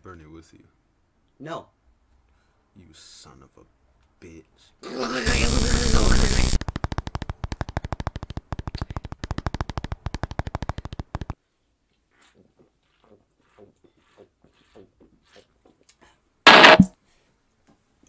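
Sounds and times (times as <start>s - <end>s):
fast electronic beat: 5.3s - 6.6s
loud distorted blast: 5.3s - 6.6s, 16.5s - 16.9s.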